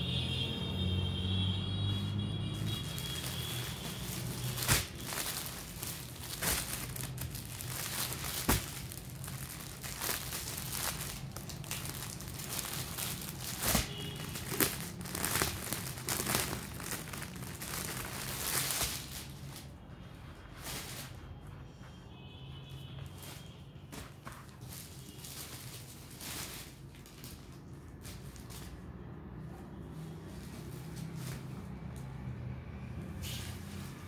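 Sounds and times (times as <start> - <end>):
plastic packets crinkling: 2.4 - 21.4, 23.0 - 29.0.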